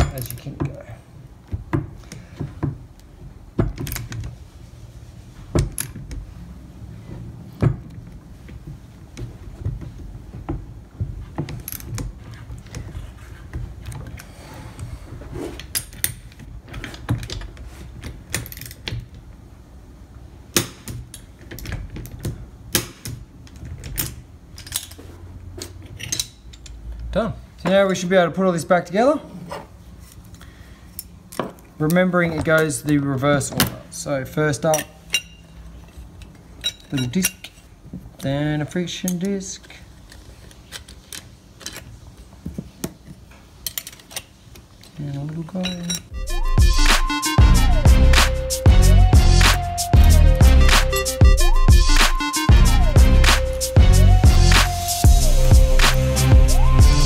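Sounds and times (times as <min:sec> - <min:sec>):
metal tools clinking: 0:00.0 - 0:00.9, 0:25.6 - 0:26.8, 0:34.6 - 0:37.8, 0:43.6 - 0:46.2.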